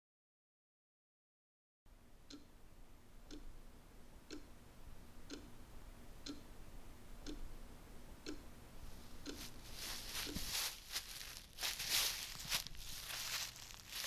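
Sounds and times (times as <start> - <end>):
grandfather clock ticking: 3.3 - 3.6, 4.2 - 4.6, 5.2 - 5.6, 6.2 - 6.6, 7.2 - 7.5, 8.2 - 8.5.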